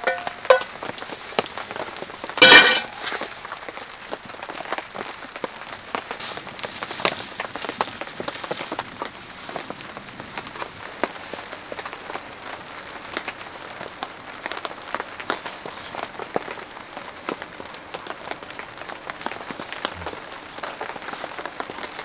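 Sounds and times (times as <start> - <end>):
frying pan clanging on metal: 0.0 - 0.8, 2.4 - 3.3
rain pattering on tent: 0.0 - 22.0.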